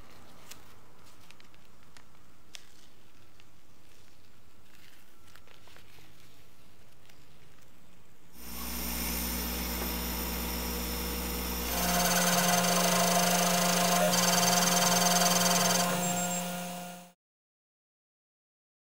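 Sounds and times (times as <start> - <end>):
laser engraving machine whine: 8.4 - 17.2.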